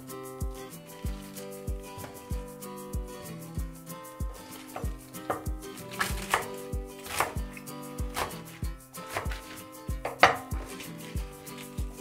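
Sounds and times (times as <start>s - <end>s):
soft background music with beat: 0.0s - 12.0s
knife chopping on wooden board: 4.6s - 8.5s, 9.1s - 10.8s.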